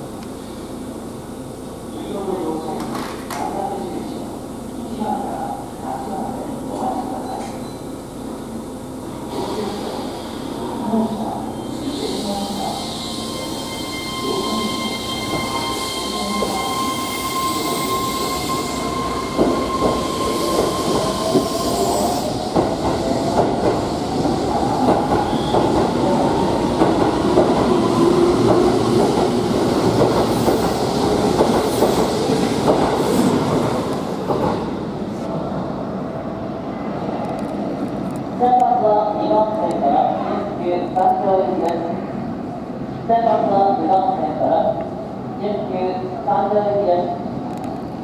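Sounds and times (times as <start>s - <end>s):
steady high tone: 10.9s - 22.4s.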